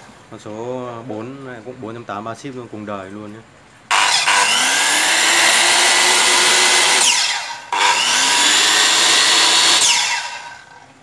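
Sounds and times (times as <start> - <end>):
circular saw whining: 3.9 - 11.0.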